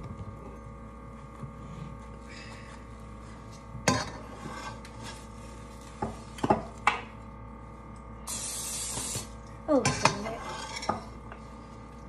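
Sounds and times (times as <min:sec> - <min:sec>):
spatula scraping under pancake: 0:04.2 - 0:05.3.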